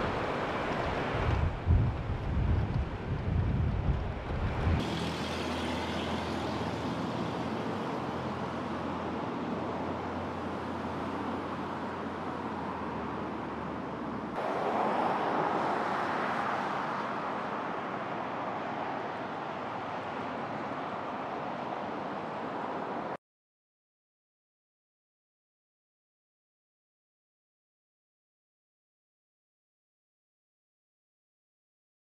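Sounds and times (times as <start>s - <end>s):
road traffic noise: 0.0s - 23.2s
vehicle passing: 4.4s - 21.6s.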